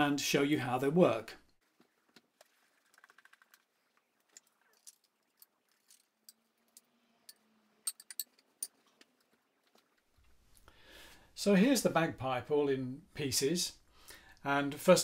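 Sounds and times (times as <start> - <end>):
wooden pipes clicking and knocking: 1.7 - 10.4.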